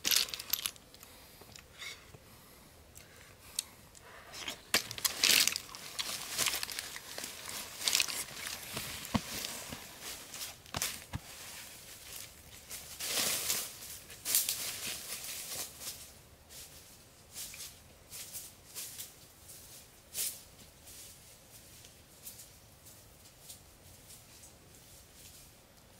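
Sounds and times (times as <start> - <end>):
footsteps in dry leaves: 4.7 - 23.0.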